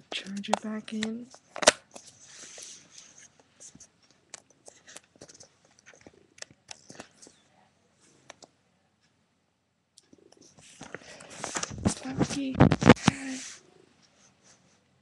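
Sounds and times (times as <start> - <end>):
recording device handling noise: 0.0 - 7.5, 9.9 - 13.4.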